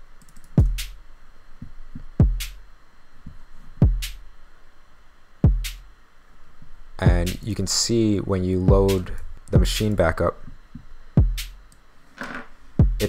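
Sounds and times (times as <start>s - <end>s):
electronic kick drum thump: 0.6s - 1.0s, 1.6s - 2.6s, 3.8s - 4.2s, 5.4s - 5.9s, 7.0s - 7.5s, 8.7s - 10.0s, 10.8s - 11.7s, 12.8s - 13.0s.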